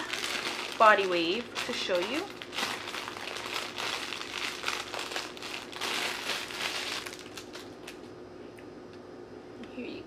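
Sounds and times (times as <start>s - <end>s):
packaging crinkling and rustling: 0.0s - 8.1s.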